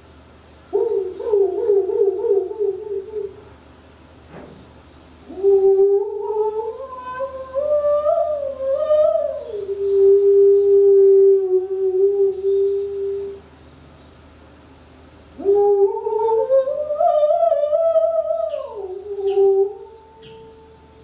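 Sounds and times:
woman humming: 1.0 - 3.4, 5.3 - 13.4, 15.4 - 21.0.

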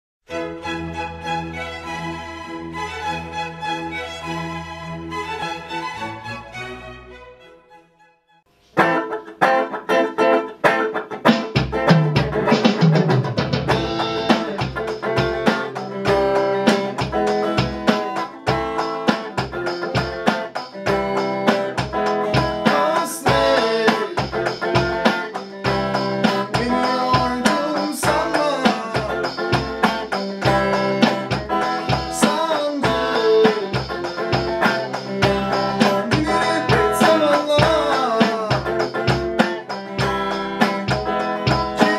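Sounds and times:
electric guitar melody: 8.5 - 41.9
electronic drum beat: 11.1 - 41.9.

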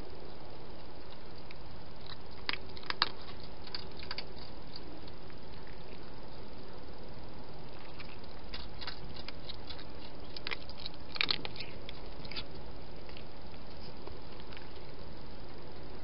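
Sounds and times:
cat crunching and chewing food: 0.0 - 16.0.

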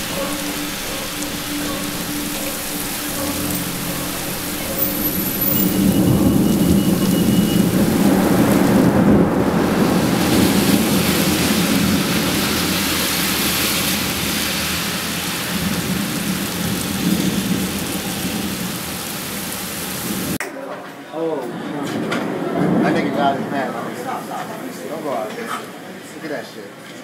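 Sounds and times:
rain falling: 0.0 - 20.4, 21.4 - 26.0
low rumble of thunder: 3.6 - 14.5, 21.6 - 24.7.

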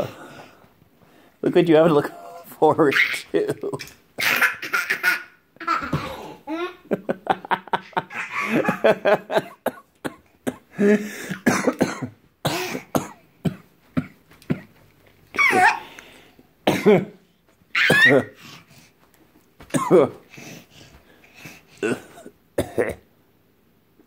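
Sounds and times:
toddler giggling: 2.2 - 9.5, 15.3 - 16.0
toddler squealing: 15.3 - 15.9, 17.7 - 18.3.

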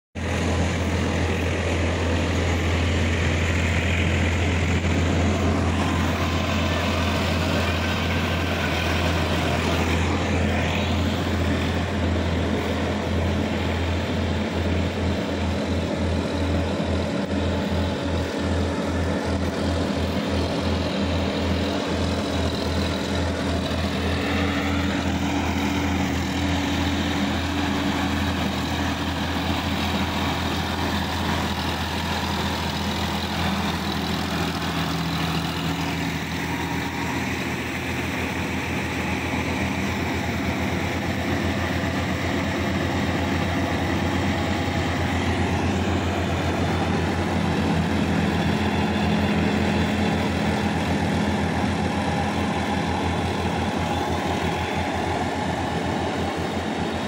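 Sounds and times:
tractor engine throbbing: 0.1 - 57.0.

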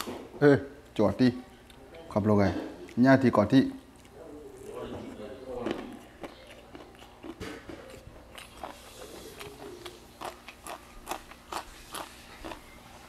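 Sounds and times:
person crunching raw vegetables: 3.9 - 13.0.

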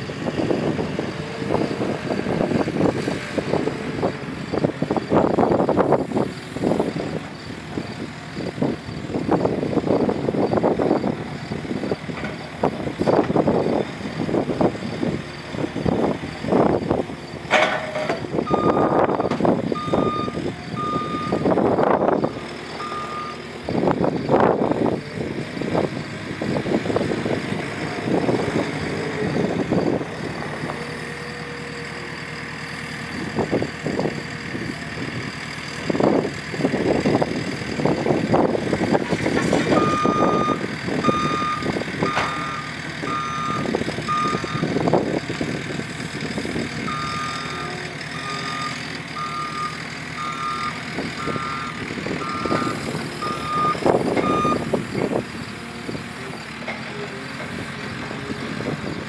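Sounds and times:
loader engine revving: 0.0 - 59.0
reverse alarm beeping: 19.8 - 21.4, 39.8 - 44.7, 48.2 - 54.6.

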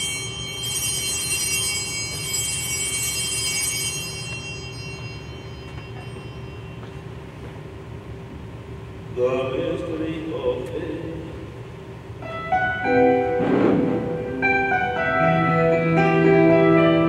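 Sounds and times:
altar bells ringing: 0.0 - 7.6
steady low hum: 0.0 - 17.0.

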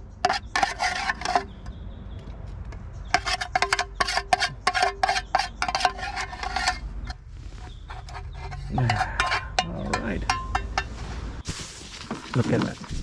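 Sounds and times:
metal spoon scraping a tin: 0.2 - 1.8, 3.0 - 11.0.

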